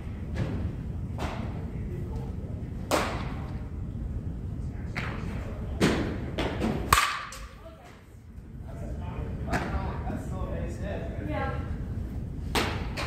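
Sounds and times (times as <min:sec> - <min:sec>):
bats striking balls: 0:05.8 - 0:07.5
balls hitting cage netting: 0:05.8 - 0:07.6.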